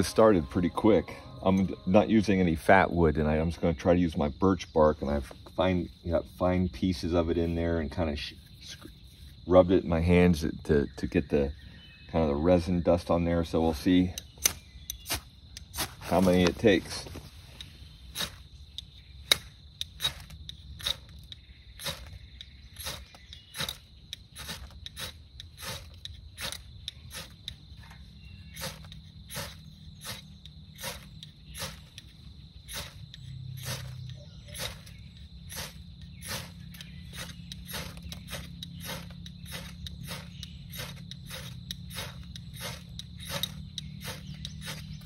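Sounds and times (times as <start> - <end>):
high insect drone: 0.0 - 45.0
ferro rod scraped: 22.8 - 27.5, 28.5 - 45.0.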